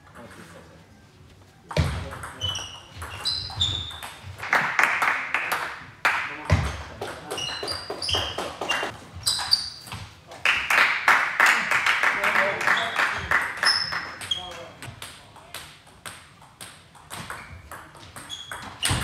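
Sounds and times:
table tennis ball hits: 0:05.4 - 0:08.9, 0:14.9 - 0:19.0.

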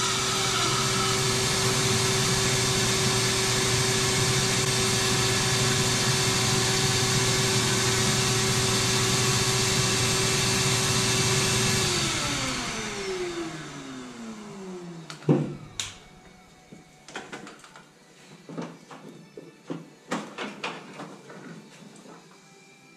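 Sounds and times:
vacuum motor winding down: 0:00.0 - 0:16.0
shop vacuum running: 0:00.0 - 0:16.8.

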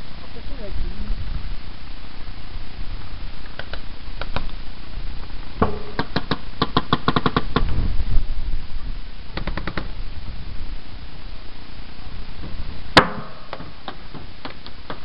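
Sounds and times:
paintball markers firing: 0:03.6 - 0:04.6, 0:05.6 - 0:07.8, 0:09.4 - 0:09.9.

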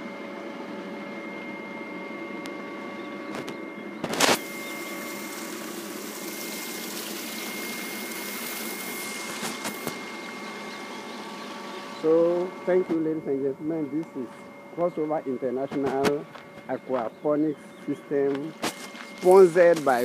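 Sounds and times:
pump humming: 0:00.0 - 0:20.0
water running: 0:04.4 - 0:12.6.

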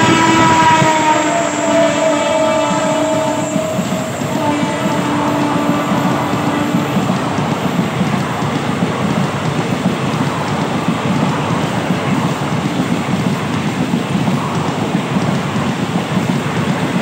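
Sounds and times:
train horn: 0:00.0 - 0:08.6
train wheels rumbling on rails: 0:00.0 - 0:17.0.

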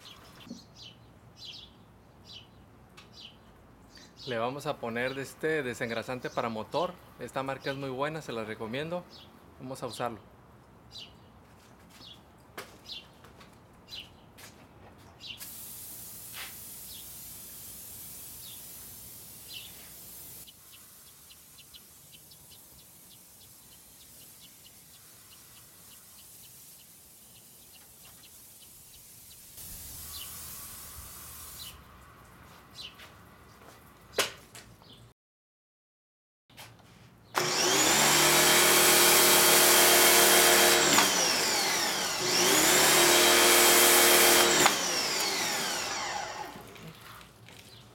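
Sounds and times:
aerosol can hissing: 0:15.4 - 0:20.5, 0:28.9 - 0:31.8
birds chirping: 0:20.5 - 0:30.5, 0:32.7 - 0:34.2
pressure washer motor whining: 0:37.4 - 0:46.9.

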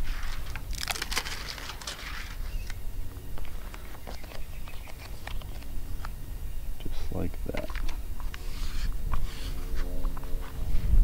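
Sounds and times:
plastic film rustling and crackling: 0:00.0 - 0:02.4.

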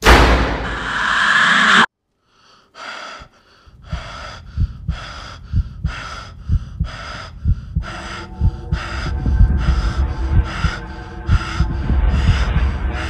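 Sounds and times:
heavy fast breathing: 0:01.0 - 0:13.0
low thumps: 0:03.9 - 0:13.0.

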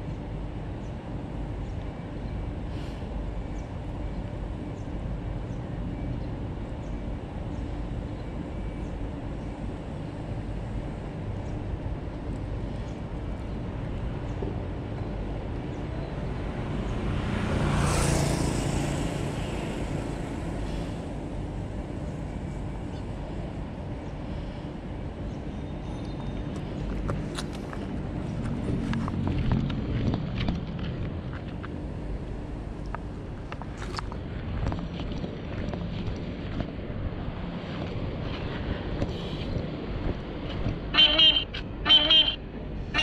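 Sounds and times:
traffic hum: 0:00.0 - 0:43.0
motor vehicle passing close: 0:16.6 - 0:21.1.

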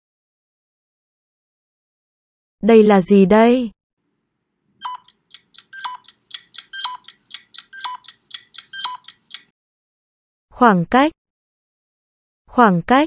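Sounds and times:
electronic clock ticking: 0:04.8 - 0:09.5.

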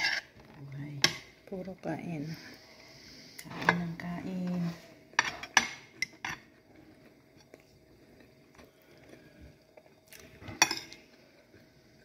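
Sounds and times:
metal spoon scraping plate: 0:00.0 - 0:00.3.

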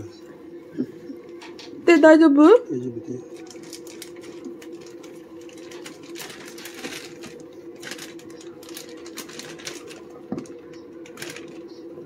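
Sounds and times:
steady hum: 0:00.0 - 0:12.0
plastic bag rustling: 0:03.3 - 0:11.7.

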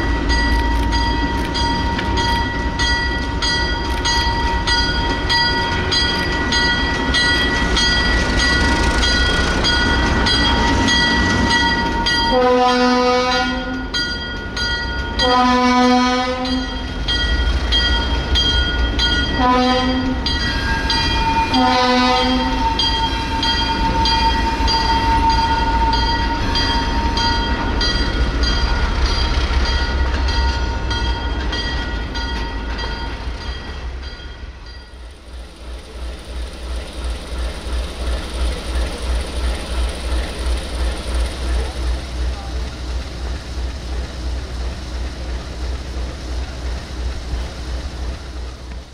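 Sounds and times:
diesel locomotive engine rumbling: 0:00.0 - 0:48.9
train air horn blasts: 0:12.2 - 0:13.8, 0:15.2 - 0:16.8, 0:19.4 - 0:27.4.

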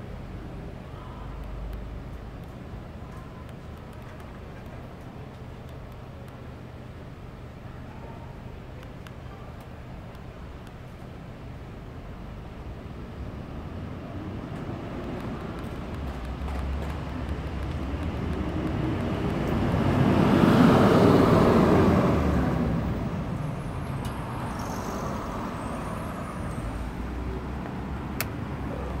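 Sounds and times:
vehicle passing: 0:15.2 - 0:29.0.

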